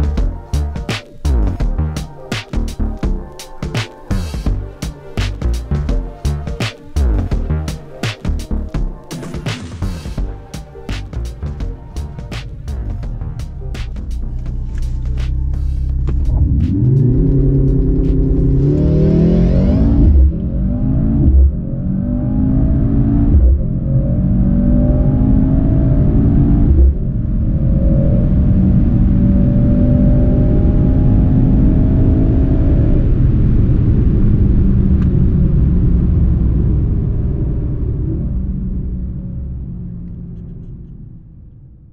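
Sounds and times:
low engine rumble: 0.0s - 22.2s
car engine accelerating: 0.0s - 41.6s.

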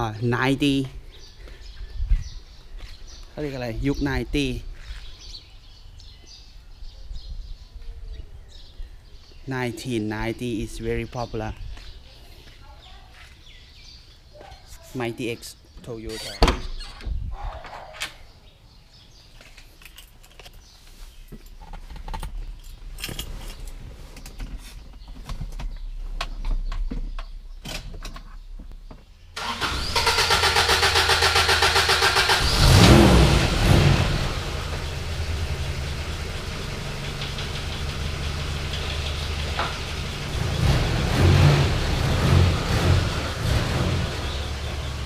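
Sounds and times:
engine cranking and idling: 29.4s - 45.0s.

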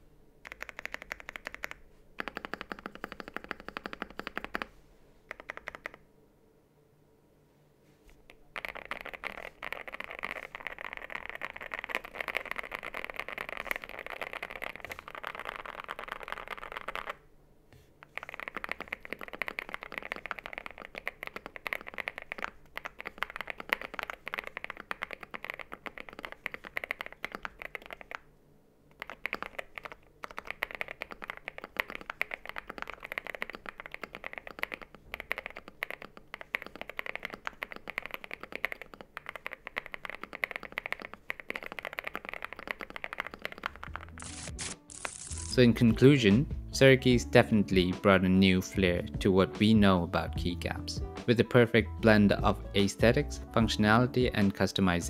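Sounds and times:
fast mechanical keyboard typing: 0.4s - 4.7s, 5.3s - 6.0s, 8.6s - 17.2s, 18.0s - 28.2s, 29.0s - 45.6s.

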